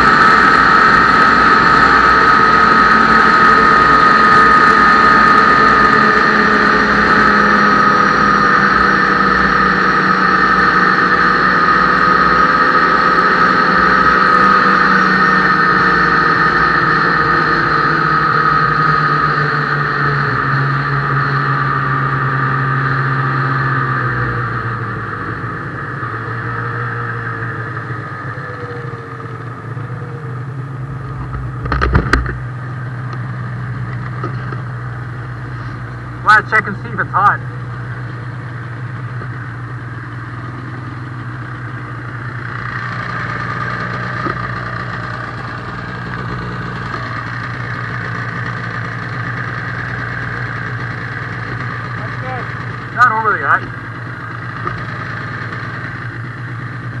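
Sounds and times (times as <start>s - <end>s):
snowmobile engine whining: 0.0s - 57.0s.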